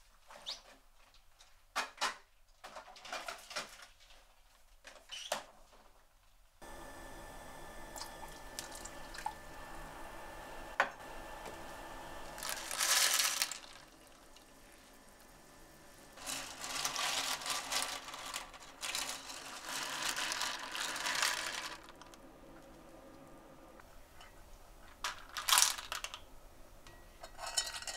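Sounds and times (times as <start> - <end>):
water boiling in a pot: 6.6 - 18.1.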